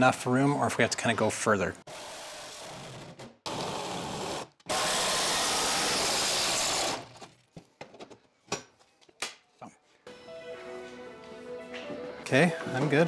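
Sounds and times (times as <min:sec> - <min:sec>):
power tool cutting sheet metal: 0:01.9 - 0:07.1.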